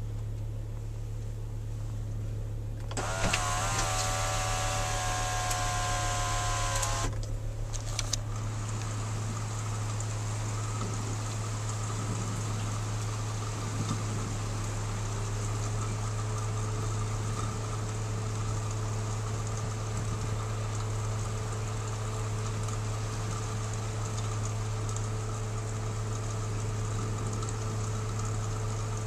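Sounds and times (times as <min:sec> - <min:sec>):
constant low hum: 0:00.0 - 0:29.0
sunroof clicks: 0:02.8 - 0:08.3
sunroof motor whining: 0:02.8 - 0:18.6
light rain hissing: 0:03.0 - 0:29.0.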